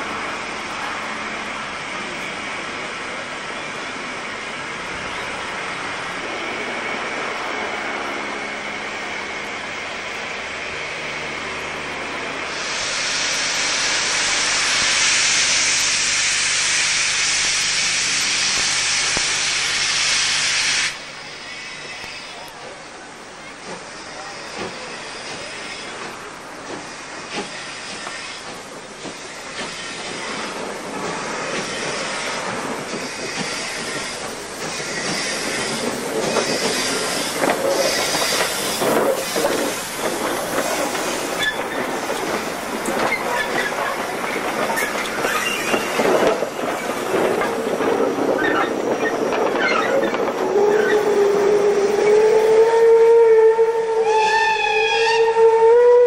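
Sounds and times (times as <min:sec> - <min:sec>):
steam locomotive chuffing: 0:00.0 - 0:56.0
wheel squeals: 0:32.9 - 0:52.2
steam whistle: 0:50.5 - 0:56.0.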